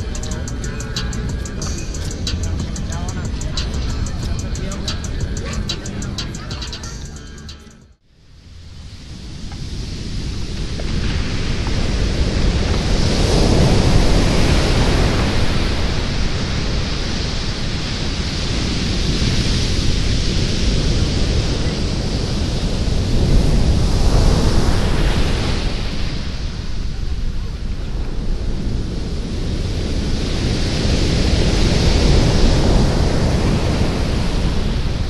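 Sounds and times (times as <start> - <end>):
sea waves breaking on beach: 8.8 - 35.0.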